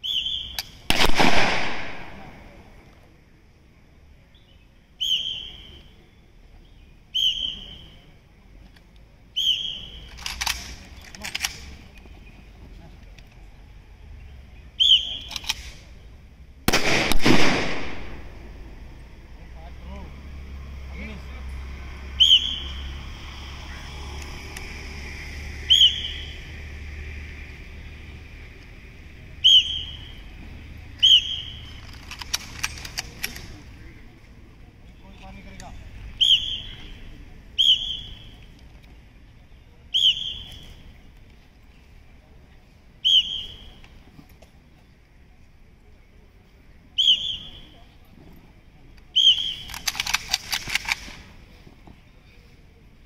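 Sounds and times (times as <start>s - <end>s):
shrill whistle blasts: 0.0s - 0.6s, 5.0s - 5.9s, 7.1s - 8.0s, 9.4s - 10.1s, 14.8s - 15.3s, 22.2s - 23.1s, 25.6s - 26.5s, 29.4s - 30.2s, 31.0s - 31.7s, 36.2s - 36.9s, 37.6s - 38.4s, 39.9s - 40.8s, 43.0s - 43.8s, 47.0s - 47.8s, 49.1s - 49.7s.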